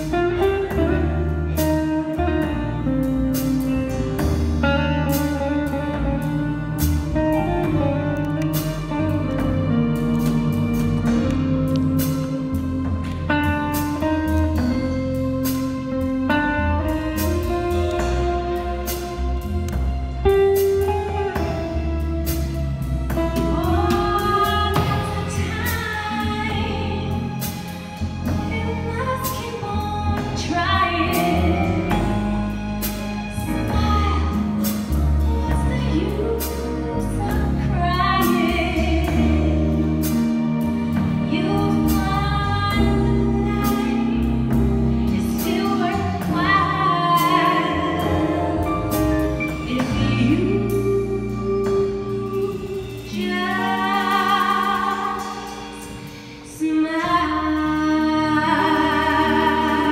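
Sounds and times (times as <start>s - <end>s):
live band playing: 0.0s - 59.9s
walking bass notes: 0.0s - 59.9s
woman singing with vibrato: 41.2s - 59.9s.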